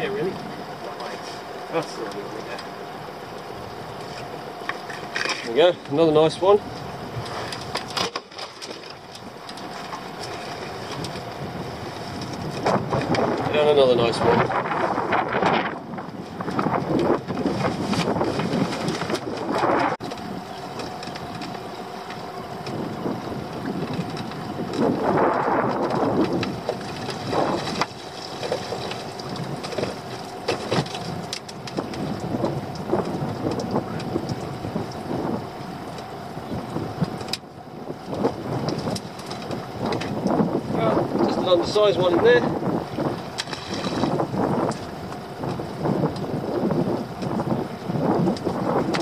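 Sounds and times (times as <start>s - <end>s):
wind buffeting microphone: 0.0s - 49.0s
crab pots knocking and rattling: 7.6s - 11.2s.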